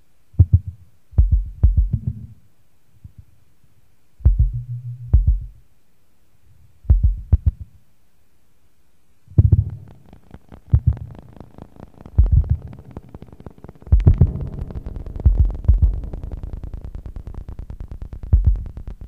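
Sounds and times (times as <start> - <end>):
deep low noise bursts: 0.4 - 2.4, 4.2 - 5.6, 6.8 - 7.8, 9.3 - 19.0
crackle: 9.3 - 19.0
low drone: 9.4 - 19.0
sharp clicks: 9.4 - 19.0.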